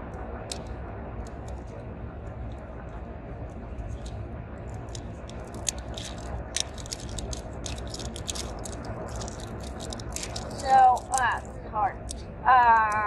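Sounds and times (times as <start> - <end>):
plastic toy pieces clicking: 4.8 - 12.2.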